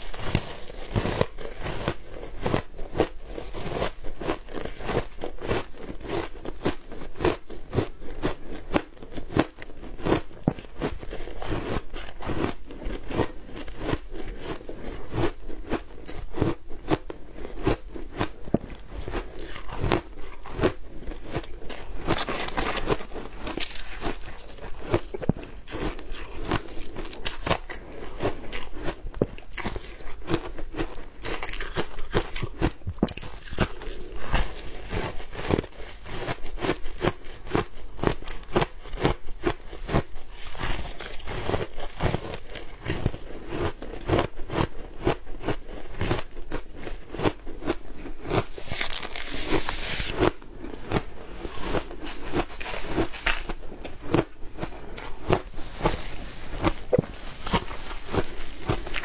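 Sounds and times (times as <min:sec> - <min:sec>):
crunching shaved ice: 0:00.0 - 0:59.0.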